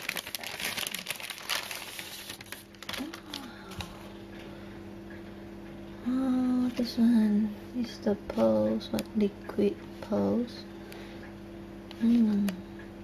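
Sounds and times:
packaging rustling and crinkling: 0.0s - 4.0s.

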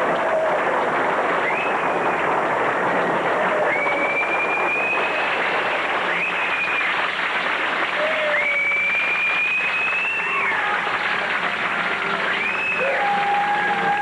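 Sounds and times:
audience applauding: 0.0s - 14.0s
high-pitched whistles: 1.4s - 2.0s, 3.6s - 7.2s, 8.1s - 10.7s, 12.2s - 13.8s.

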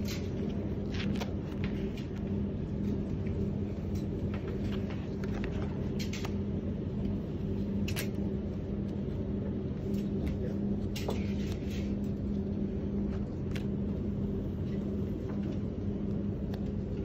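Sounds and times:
sample sheets rustling: 0.0s - 6.3s
low mechanical hum: 0.0s - 17.0s.

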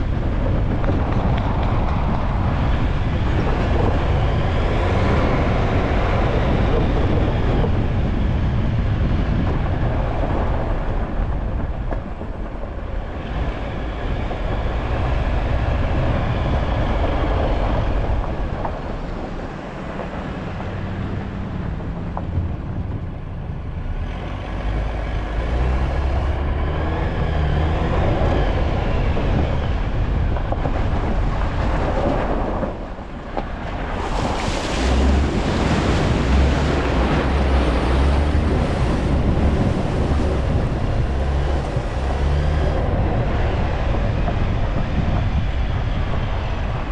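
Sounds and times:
off-road vehicle rumbling on gravel: 0.0s - 46.9s
water splashing: 33.0s - 42.6s.

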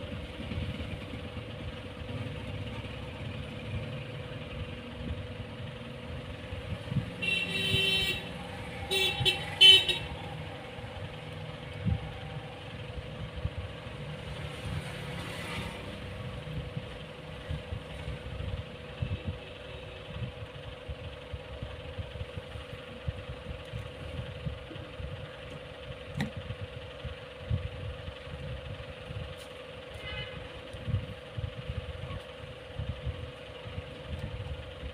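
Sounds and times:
steady hum: 0.0s - 15.2s
road traffic passing: 0.0s - 34.9s.

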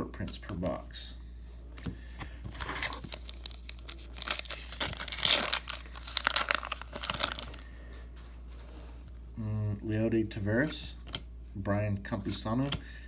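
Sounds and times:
card pack wrapper tearing: 2.6s - 7.6s.

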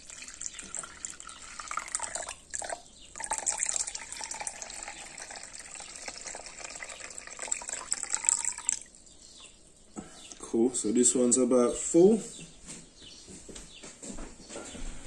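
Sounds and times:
liquid pouring through cloth: 0.0s - 9.1s.

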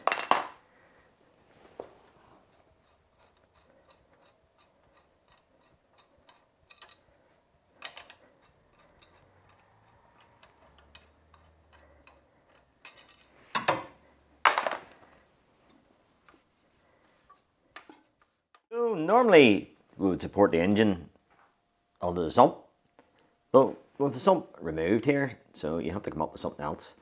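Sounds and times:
bolt ticking and clicking: 2.5s - 7.2s.

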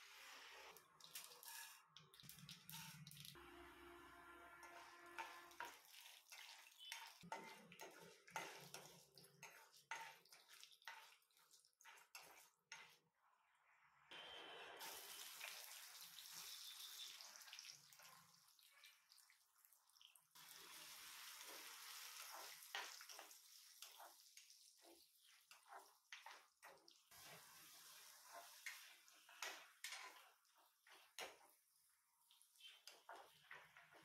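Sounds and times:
metal spatula scraping pan: 4.6s - 13.0s, 24.8s - 31.5s
onions sizzling in oil: 14.8s - 18.1s, 20.4s - 31.5s.

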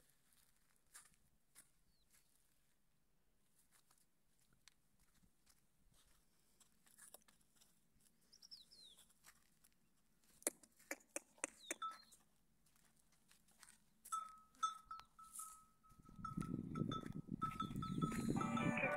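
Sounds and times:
camel bell clinking: 11.7s - 12.2s, 14.1s - 18.9s.

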